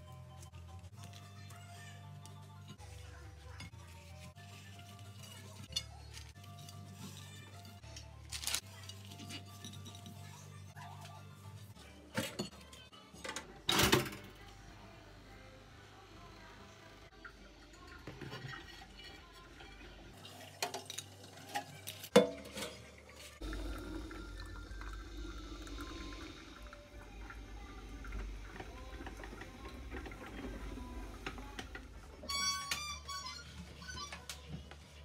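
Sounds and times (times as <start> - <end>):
coffee maker gurgling and hissing: 16.0 - 32.4.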